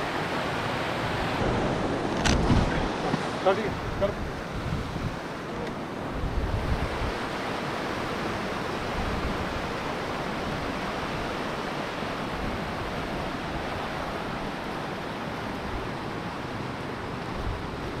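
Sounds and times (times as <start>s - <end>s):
fast stream of water rushing: 0.0s - 18.0s
wind buffeting microphone: 1.1s - 5.3s, 6.0s - 11.5s.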